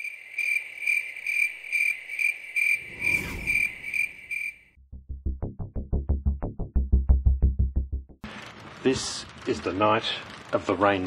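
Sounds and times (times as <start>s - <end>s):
cricket chirping: 0.0s - 4.7s
short swish: 2.8s - 4.3s.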